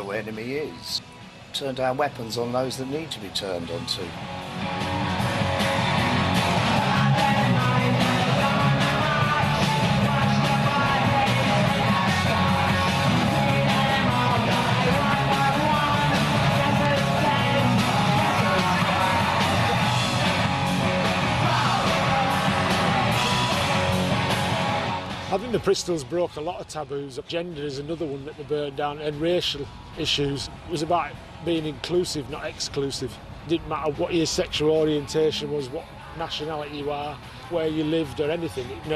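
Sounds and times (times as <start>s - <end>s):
electric guitar: 4.1s - 25.3s
punk rock song: 4.1s - 25.4s
yelled singing: 4.4s - 25.3s.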